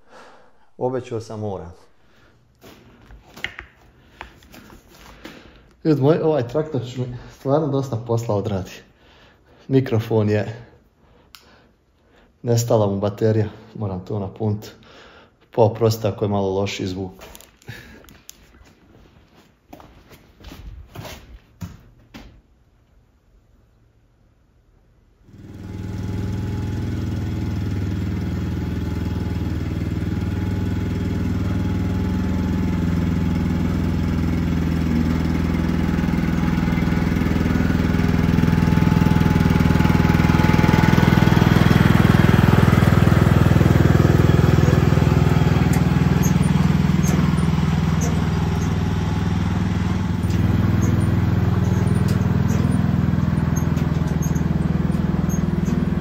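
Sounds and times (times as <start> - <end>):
tractor engine running: 25.4 - 56.0.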